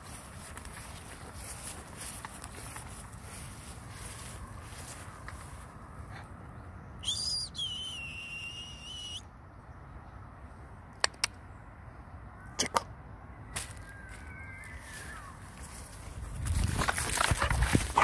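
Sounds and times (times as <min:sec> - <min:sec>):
sharp clicks: 0:10.9 - 0:11.4.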